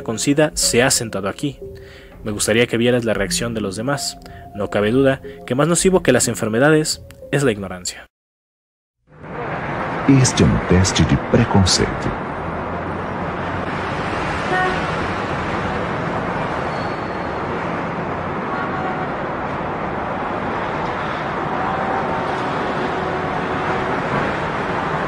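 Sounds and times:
traffic noise: 9.1 - 25.0
vehicle horn toots: 14.4 - 14.9, 18.5 - 19.2, 21.4 - 24.2.

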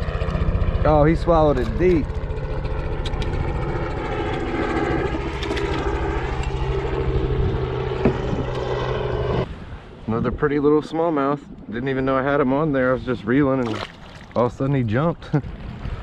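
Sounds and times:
motor droning hum: 0.0 - 12.9.

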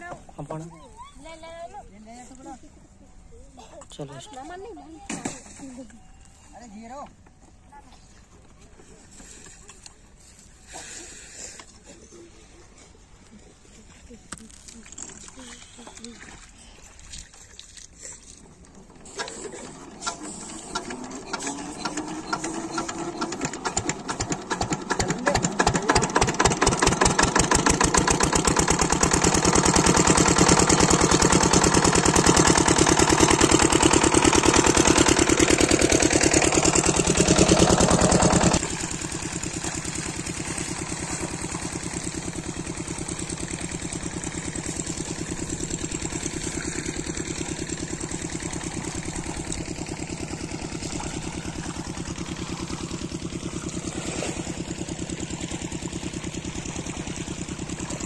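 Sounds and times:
diesel engine hand-cranked: 14.0 - 58.0.

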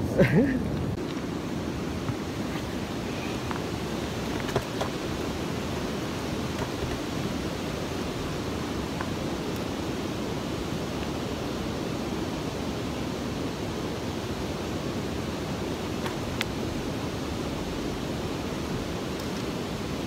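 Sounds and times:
river water rushing over dam: 0.0 - 20.0.

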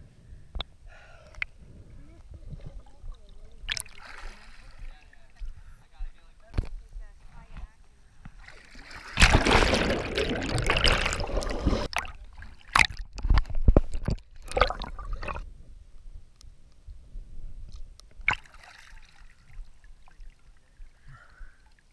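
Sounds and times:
water splashing: 2.5 - 5.4, 8.4 - 15.4, 18.2 - 21.0
water dripping and trickling: 2.6 - 4.1
water rushing: 8.8 - 12.9.

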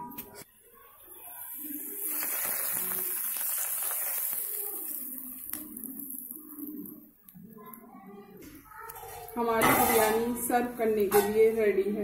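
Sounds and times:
hot oil sizzling on rice: 0.7 - 7.1.

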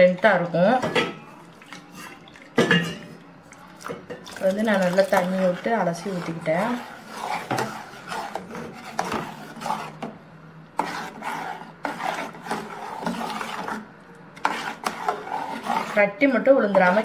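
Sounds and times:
metal ladle scraping a pot: 3.8 - 10.2, 10.8 - 17.0.

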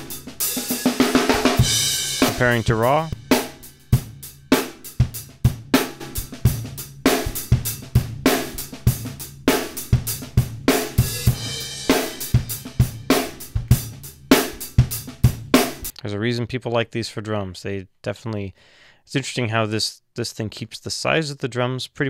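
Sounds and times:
drum kit playing groove: 0.0 - 15.9.

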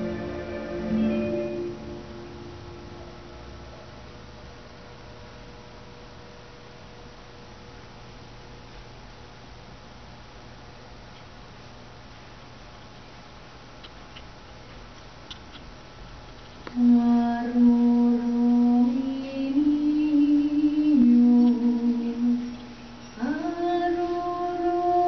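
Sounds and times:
woman humming a slow tune: 16.8 - 25.0.

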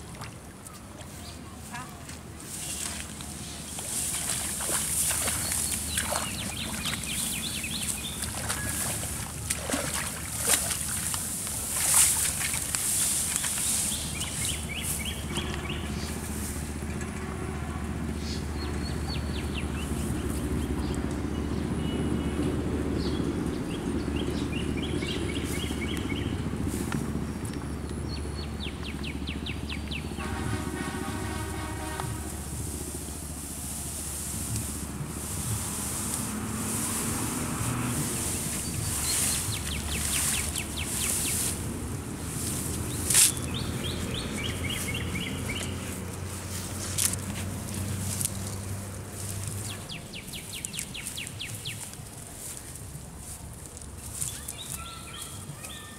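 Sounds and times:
water splashes: 0.0 - 16.3
birds trilling: 4.1 - 11.0, 54.1 - 55.9
rustling: 32.3 - 43.6.

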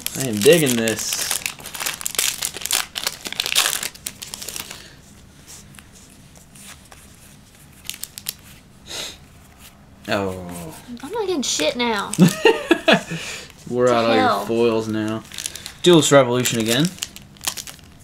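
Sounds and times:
foil wrapper tearing open: 0.0 - 5.0, 7.8 - 8.4, 15.0 - 18.0
trading cards rustling: 0.0 - 8.6, 13.5 - 18.0.

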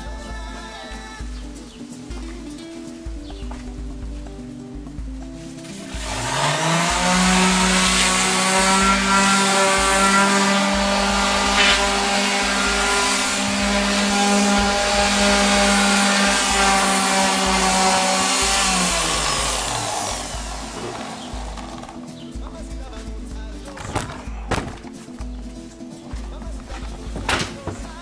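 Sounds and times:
orbital sander humming: 5.8 - 22.0.

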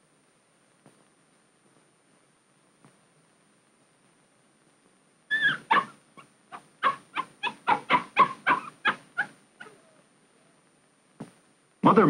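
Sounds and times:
puppy yipping: 5.3 - 10.0.

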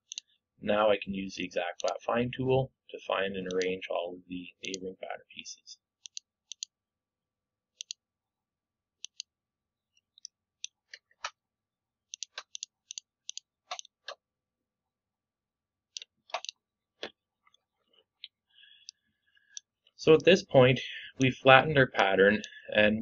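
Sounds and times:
computer mouse clicking: 6.0 - 6.7, 7.8 - 8.0, 9.0 - 9.3, 12.1 - 14.2, 16.0 - 17.6.

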